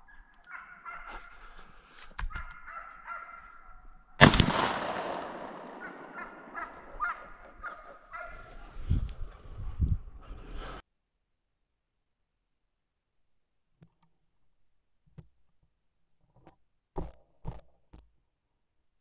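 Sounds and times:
hunting dogs baying: 0.0 - 3.8, 4.8 - 8.8
shotgun shot with echo: 4.2 - 7.3.

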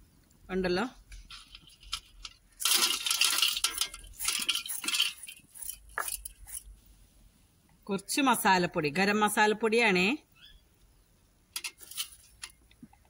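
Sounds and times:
peanuts rattling in metal strainer: 2.6 - 6.6.

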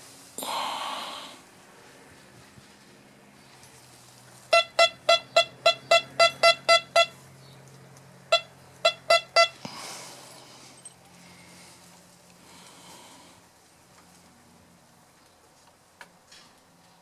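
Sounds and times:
metal detector beeps: 4.5 - 7.2, 8.3 - 9.6.

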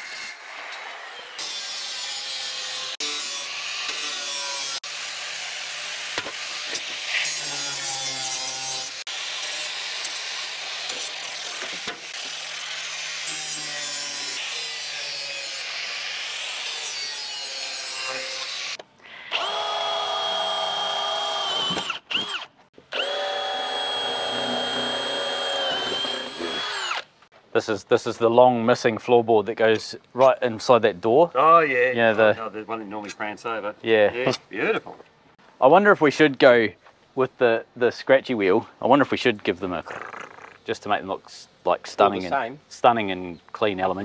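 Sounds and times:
power tool cutting metal: 0.0 - 27.1
drill motor whining: 19.3 - 27.1.

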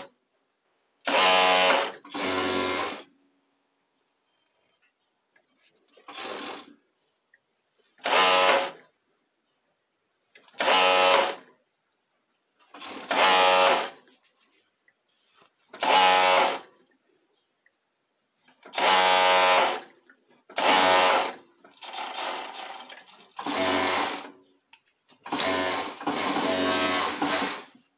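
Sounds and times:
overlock sewing machine running: 1.1 - 3.1, 6.1 - 6.7, 8.0 - 8.8, 10.6 - 11.4, 15.8 - 16.6, 18.7 - 19.9, 20.5 - 24.3, 25.3 - 27.8.

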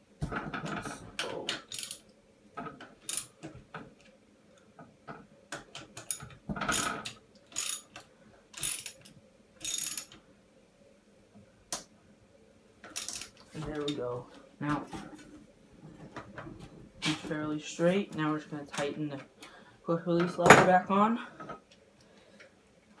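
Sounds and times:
socket ratchet clicking: 7.6 - 7.9, 8.6 - 9.0.

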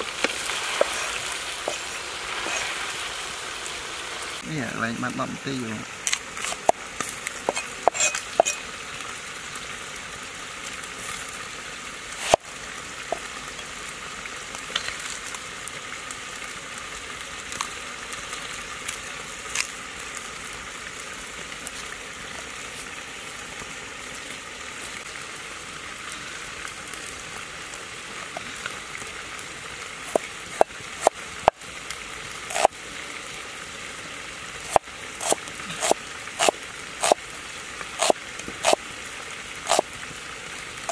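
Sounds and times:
steady hiss: 0.0 - 17.2
cleaver chopping onion on wood: 0.2 - 1.9, 34.7 - 37.2, 38.0 - 38.8.

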